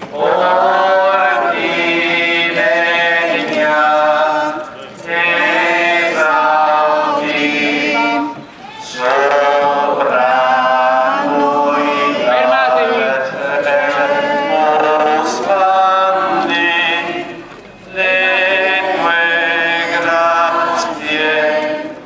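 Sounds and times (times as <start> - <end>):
voices singing a hymn unaccompanied: 0.0 - 22.0.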